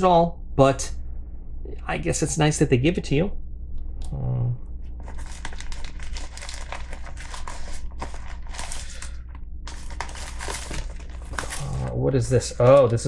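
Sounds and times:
plastic and paper crinkling: 5.0s - 13.0s.

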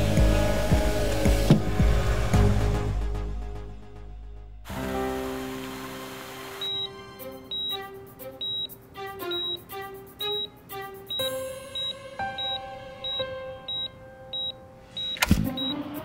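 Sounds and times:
soft background music: 0.0s - 16.0s
patient monitor beeping: 6.6s - 16.0s.

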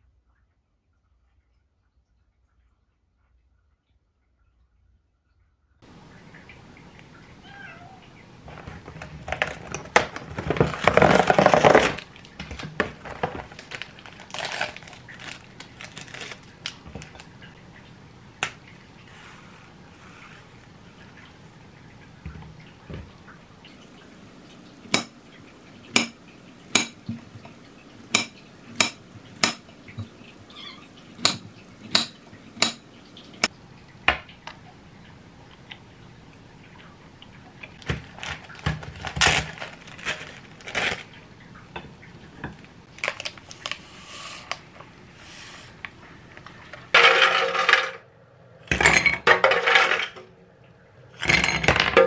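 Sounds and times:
clatter on plate: 47.0s - 48.0s.

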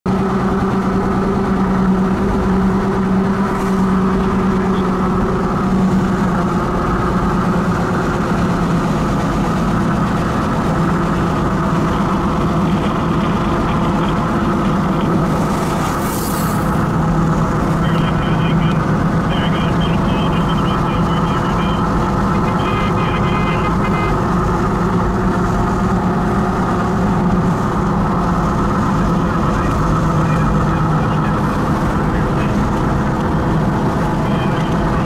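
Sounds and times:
car engine and road rumble: 0.1s - 35.0s.

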